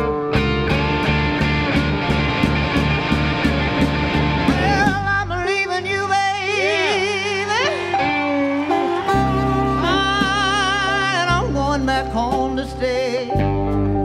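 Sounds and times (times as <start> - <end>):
slow blues band: 0.0 - 14.0.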